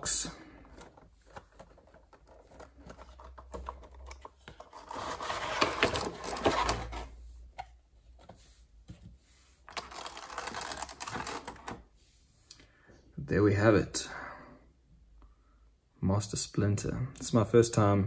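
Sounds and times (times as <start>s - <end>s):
packaging clicks and rustling: 0.4s - 7.1s, 9.7s - 11.8s
plastic tray scraping and crinkling: 4.6s - 7.2s.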